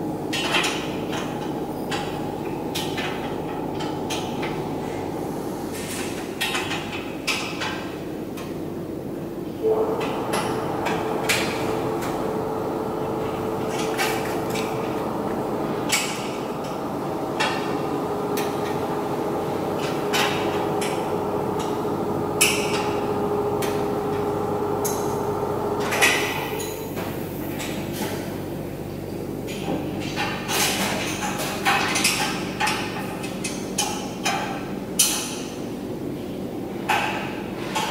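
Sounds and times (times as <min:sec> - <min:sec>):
machinery hum: 0:00.0 - 0:37.9
steady whine: 0:09.6 - 0:27.8.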